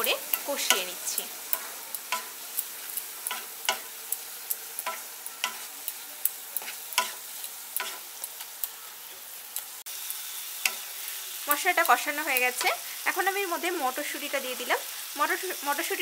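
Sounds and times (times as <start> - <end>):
masala sizzling in oil: 0.0 - 16.0
spatula tapping and scraping pan: 0.3 - 8.2.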